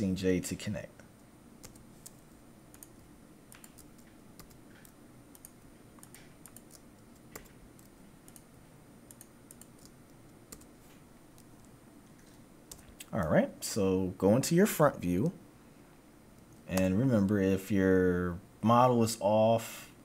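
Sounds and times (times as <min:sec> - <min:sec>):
computer mouse clicks: 0:01.2 - 0:08.5, 0:09.1 - 0:10.7
keyboard key presses: 0:01.6 - 0:08.5.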